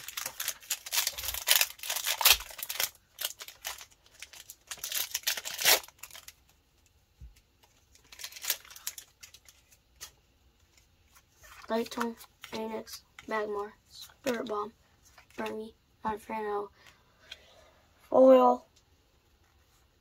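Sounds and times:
foil wrapper crinkling and tearing: 0:00.0 - 0:06.5, 0:07.6 - 0:10.2.

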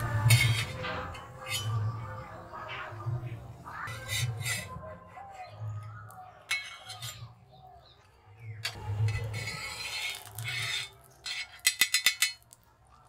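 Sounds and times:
metal spoon clinking on pan: 0:08.6 - 0:12.6
ghee sizzling on a hot pan: 0:08.8 - 0:13.0.

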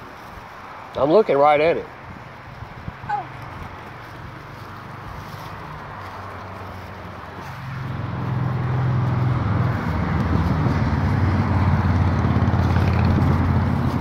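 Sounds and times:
engine running: 0:03.1 - 0:14.0.

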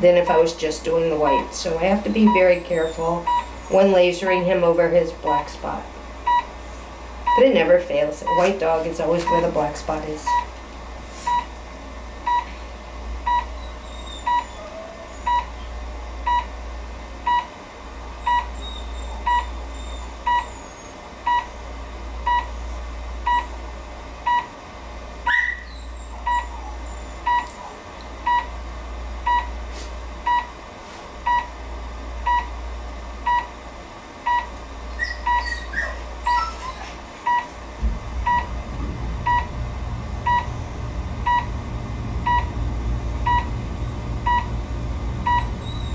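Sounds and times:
steady low hum: 0:00.0 - 0:45.9
short even beeps: 0:38.2 - 0:38.6, 0:39.2 - 0:39.6, 0:40.2 - 0:40.6, 0:41.2 - 0:41.6, 0:42.2 - 0:42.6, 0:43.2 - 0:43.6, 0:45.2 - 0:45.6.

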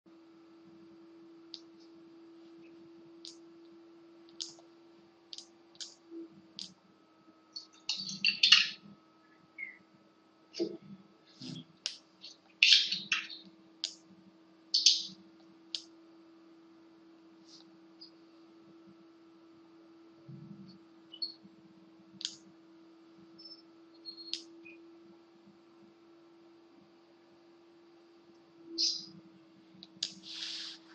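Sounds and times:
steady low hum: 0:00.1 - 0:30.9
sharp clicks: 0:04.2 - 0:04.7, 0:06.6 - 0:06.8.

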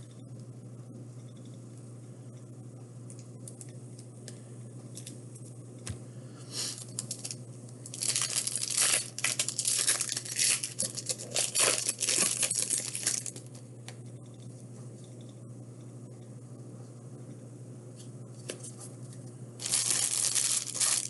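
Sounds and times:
wrapper crinkling and tearing: 0:06.8 - 0:13.5, 0:19.6 - 0:21.0.

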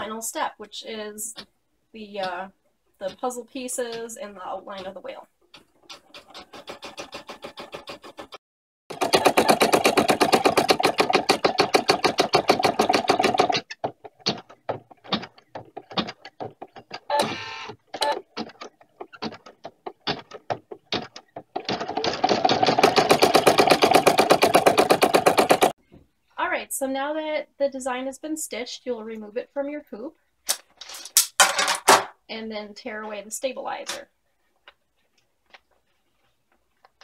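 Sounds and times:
embroidery machine stitching: 0:05.6 - 0:25.8.

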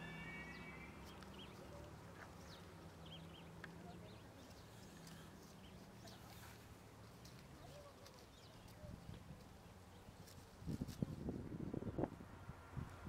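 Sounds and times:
high ringing tone: 0:00.0 - 0:01.2
high bird chirps: 0:00.0 - 0:01.6.

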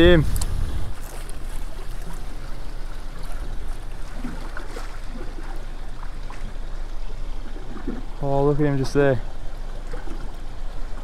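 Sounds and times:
low rumble: 0:00.0 - 0:08.3
water lapping against boat hull: 0:00.0 - 0:11.0.

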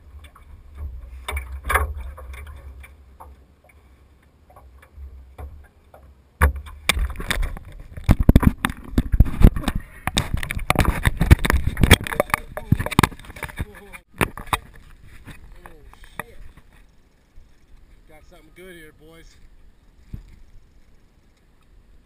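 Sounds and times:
camera housing knocks and rubbing: 0:06.4 - 0:16.8.

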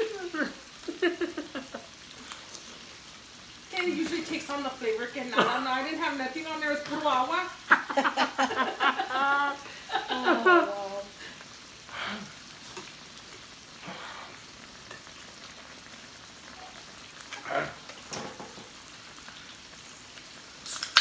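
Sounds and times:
person laughing loudly: 0:00.0 - 0:01.9, 0:07.8 - 0:11.0
meat sizzling on grill: 0:00.0 - 0:21.0.

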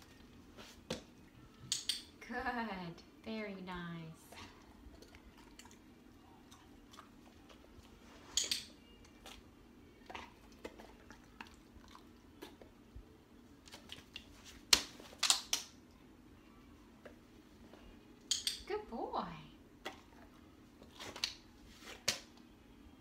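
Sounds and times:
dog chewing a treat: 0:04.3 - 0:12.8.

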